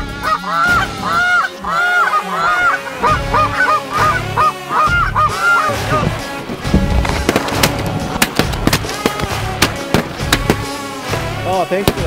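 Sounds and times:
shotguns firing: 6.8 - 11.0.

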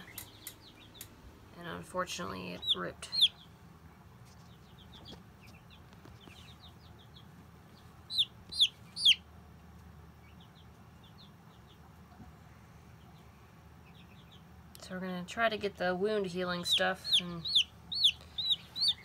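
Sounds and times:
baby chicks peeping: 0.0 - 19.0.

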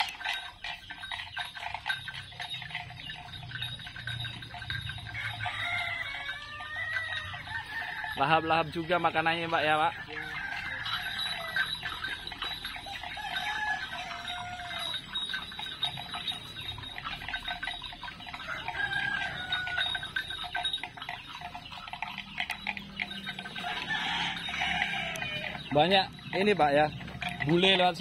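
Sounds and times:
chickens clucking: 0.0 - 28.0
thin steady high tone: 0.0 - 28.0.

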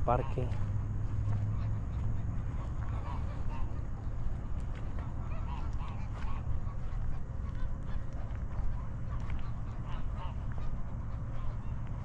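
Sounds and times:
waterfowl honking: 0.0 - 12.0.

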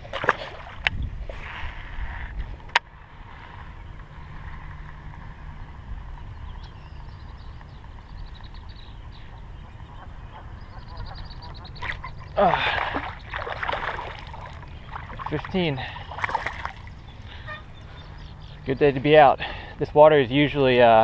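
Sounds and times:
wind rumble on microphone: 0.0 - 21.0
fish splashing into water: 11.8 - 16.9.

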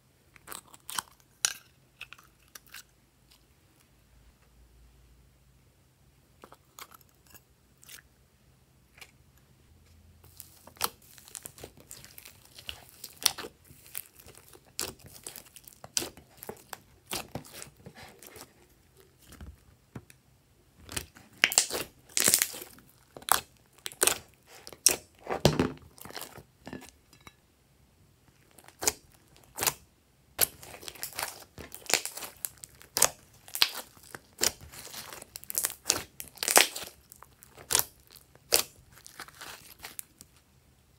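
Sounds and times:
slime popping and crackling: 10.3 - 18.5, 20.8 - 26.4, 28.4 - 29.8, 30.4 - 40.2.

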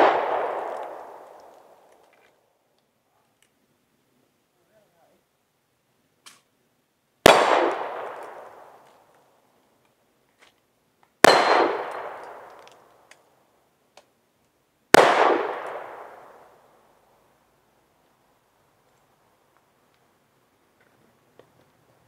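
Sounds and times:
revolver shots with echo: 11.2 - 12.5.

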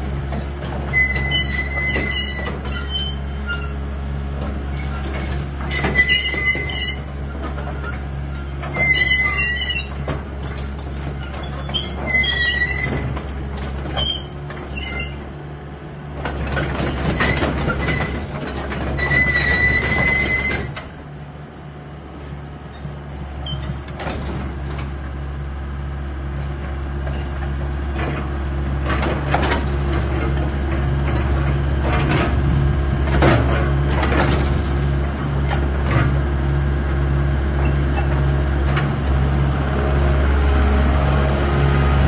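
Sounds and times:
short high squeals: 0.0 - 3.8, 4.7 - 15.2, 16.4 - 20.8
diesel engine running: 0.0 - 42.0
hydraulics working: 0.0 - 42.0.

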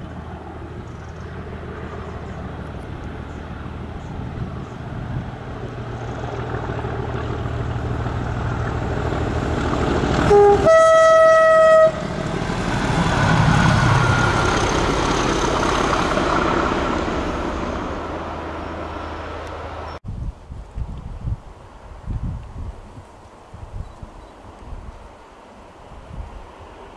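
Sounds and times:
diesel locomotive engines rumbling: 0.0 - 20.0, 20.9 - 26.9
two-tone train horn: 10.2 - 12.2.

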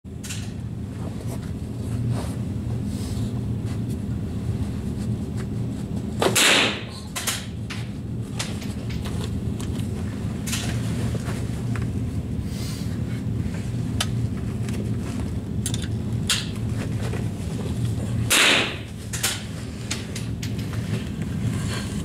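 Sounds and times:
rifle shot: 6.4 - 6.9, 18.3 - 18.9.

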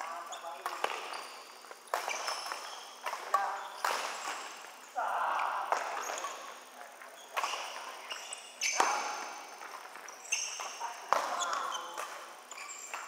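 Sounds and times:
shoes squeaking on court: 0.0 - 13.0
rackets hitting shuttlecock: 0.6 - 4.8, 7.2 - 13.0.

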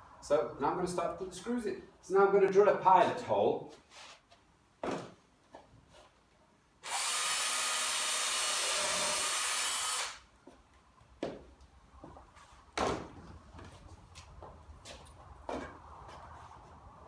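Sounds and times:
cordless drill boring into wood: 6.8 - 10.2.

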